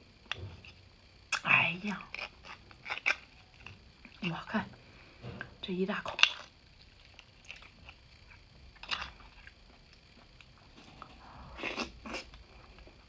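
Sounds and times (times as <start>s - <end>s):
chewing: 6.1s - 13.0s.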